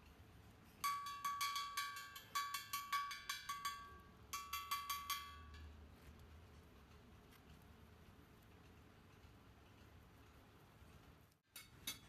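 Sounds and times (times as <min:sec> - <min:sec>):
ringing metallic taps: 0:00.8 - 0:05.8.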